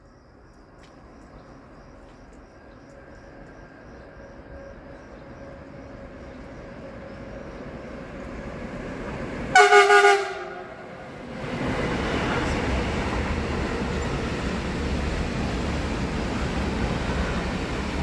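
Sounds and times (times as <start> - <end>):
freight train rumble: 0.0 - 18.0
locomotive horn blast: 9.5 - 11.0.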